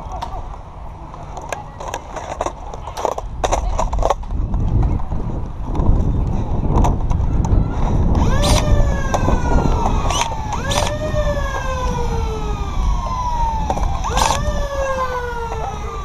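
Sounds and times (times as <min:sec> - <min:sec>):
steady low rumble: 0:00.0 - 0:16.0
sharp clicks: 0:08.2 - 0:11.0
foam dart blaster flywheel whine: 0:08.2 - 0:14.8.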